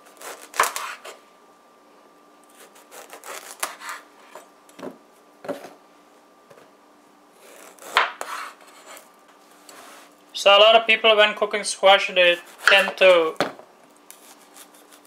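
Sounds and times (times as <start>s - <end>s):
faint steady hum: 0.0s - 15.0s
knife cutting squash on board: 0.1s - 1.1s, 2.5s - 4.4s, 7.4s - 9.0s, 12.4s - 13.4s, 14.1s - 15.0s.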